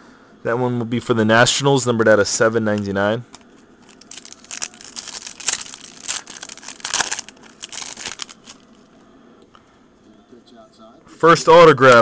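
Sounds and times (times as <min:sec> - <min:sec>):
foil wrappers crinkling: 0:03.8 - 0:08.7.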